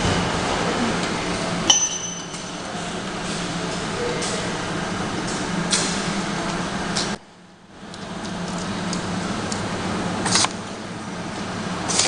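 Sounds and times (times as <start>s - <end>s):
labeling machine humming and clattering: 0.0s - 12.0s.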